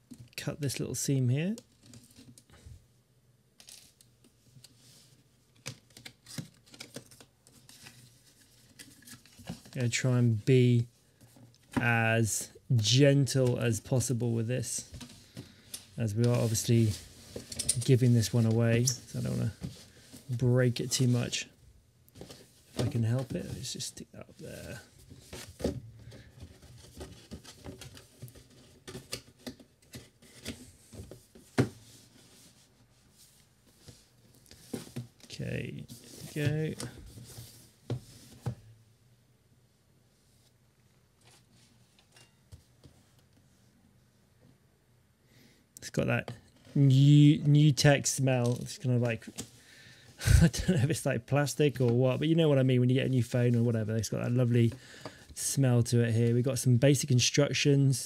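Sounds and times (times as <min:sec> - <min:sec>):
cardboard rustling and scraping: 0:22.2 - 0:38.7.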